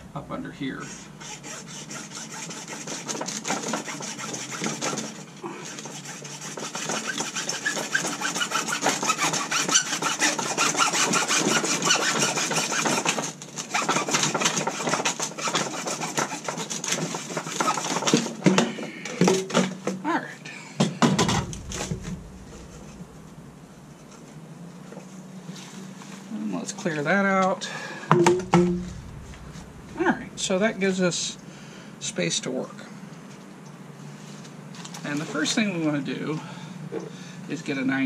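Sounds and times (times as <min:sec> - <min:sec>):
hand saw cutting plastic pipe: 0:00.8 - 0:18.7.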